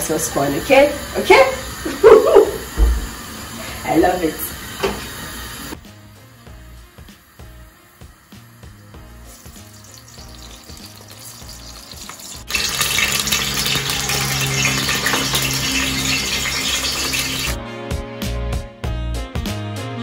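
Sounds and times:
onions sizzling in hot oil: 0.0s - 17.6s
quiet background music: 5.8s - 17.6s.

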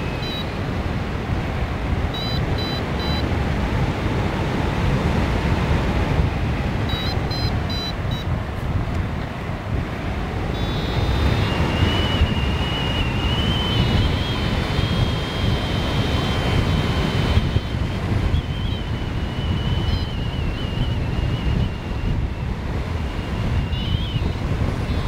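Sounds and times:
variometer short beeps: 0.0s - 0.6s, 2.1s - 3.3s, 6.8s - 8.4s, 10.5s - 12.3s
variometer high tone: 0.0s - 0.8s, 2.1s - 3.3s, 6.8s - 8.4s, 10.5s - 20.9s
wind rushing over microphone: 0.0s - 25.0s.

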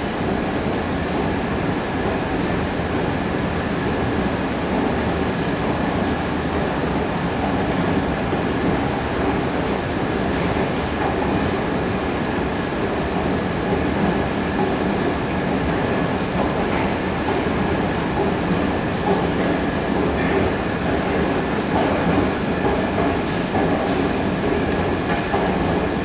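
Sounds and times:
escalator rumble and clatter: 0.0s - 26.0s.

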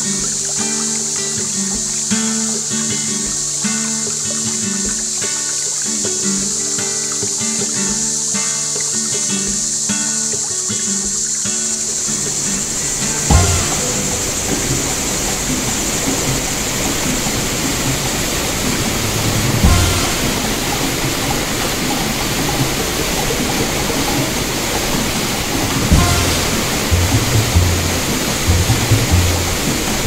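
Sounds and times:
river rushing over rocks: 11.3s - 30.0s
dull knocks: 12.6s - 30.0s.

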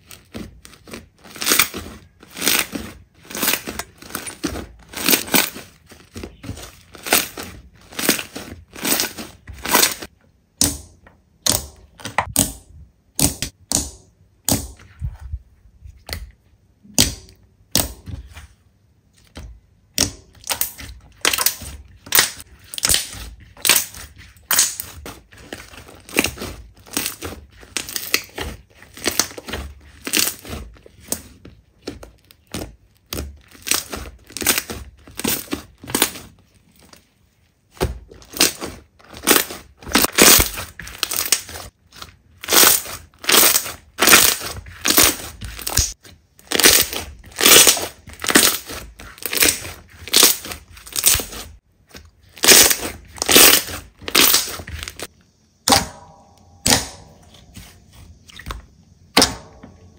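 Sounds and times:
slime squelching: 0.0s - 15.3s, 16.0s - 59.9s.

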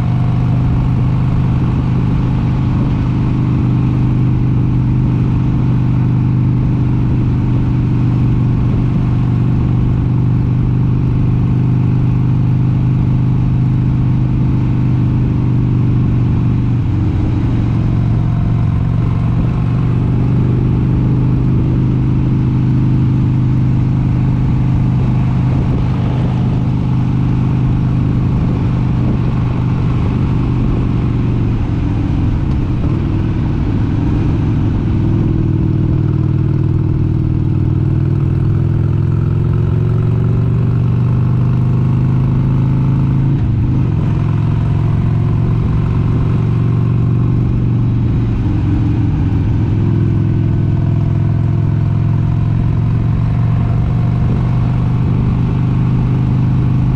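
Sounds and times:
motorcycle engine cruising: 0.0s - 56.9s
wind rumble on microphone: 14.4s - 38.2s, 42.6s - 50.8s, 53.0s - 56.9s.

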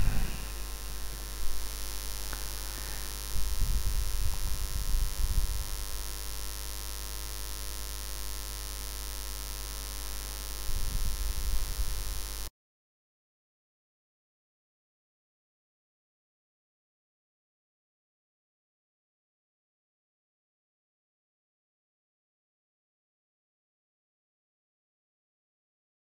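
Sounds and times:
wind rumble on microphone: 0.0s - 1.7s, 3.3s - 6.1s, 10.6s - 12.2s
background hiss and low hum: 0.0s - 12.5s.

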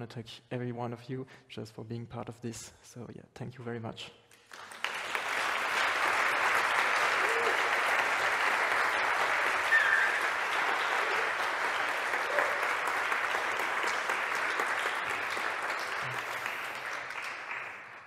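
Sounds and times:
audience applauding: 4.5s - 18.0s.

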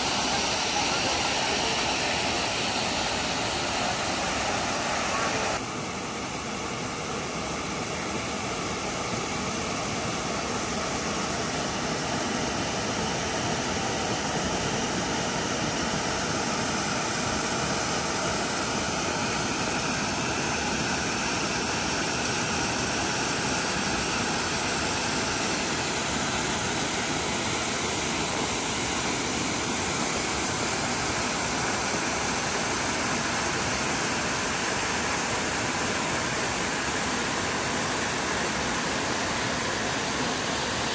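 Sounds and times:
small waterfall pouring: 0.0s - 40.9s.

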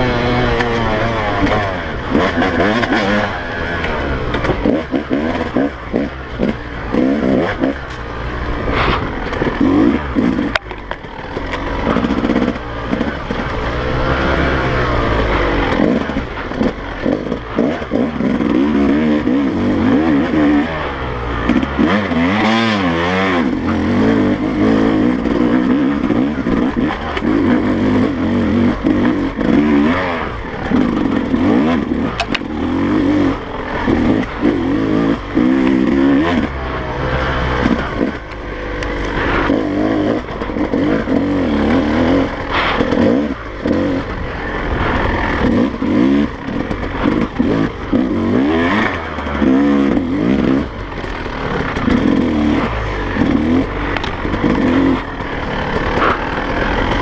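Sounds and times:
dirt bike engine revving: 0.0s - 57.0s
bike knocks and rattles: 23.4s - 57.0s.

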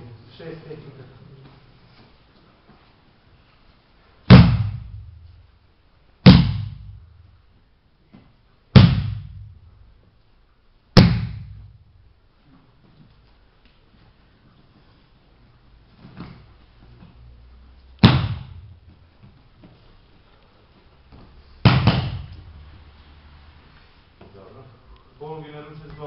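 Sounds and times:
palm slapping a mat: 4.3s - 5.4s, 6.2s - 7.2s, 8.2s - 9.7s, 11.0s - 11.8s, 18.0s - 19.9s, 21.1s - 22.6s.

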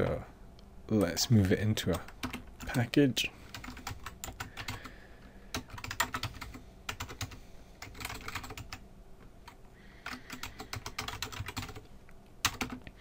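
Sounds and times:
typing on computer keyboard: 1.9s - 2.7s, 3.5s - 4.9s, 5.5s - 8.8s, 10.0s - 11.8s, 12.4s - 12.8s.

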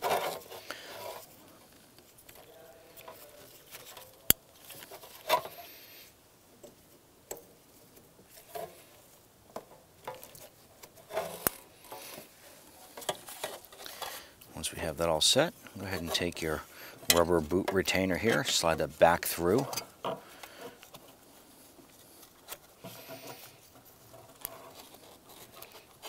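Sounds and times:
plastic rustling and clatter: 0.0s - 5.7s, 7.7s - 14.4s, 15.8s - 26.0s.

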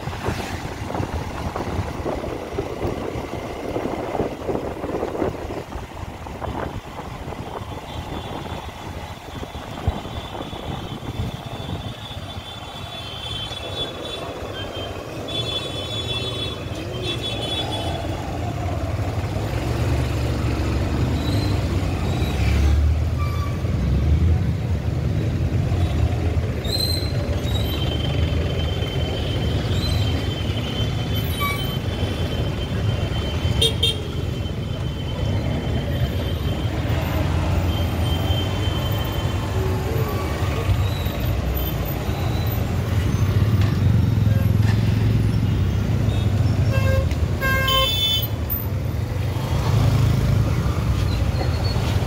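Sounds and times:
engine and road rumble: 0.0s - 52.0s
vehicle horns tooting: 29.4s - 36.8s, 46.1s - 48.4s.

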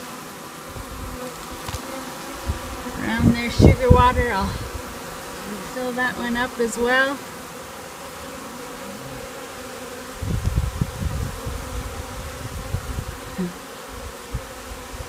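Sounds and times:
bees buzzing: 0.0s - 15.0s
low rumbling buffets: 2.4s - 4.8s.

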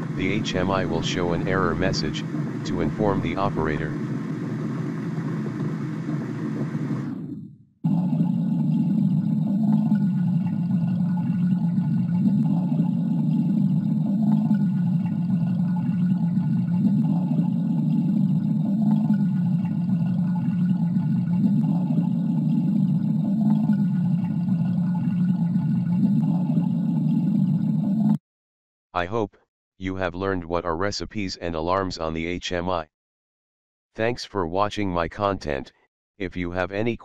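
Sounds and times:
water rushing through valve: 0.0s - 28.2s.

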